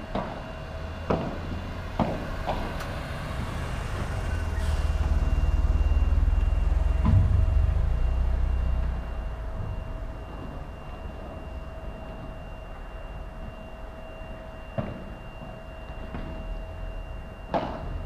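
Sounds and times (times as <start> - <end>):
low rumble: 2.3 - 12.0.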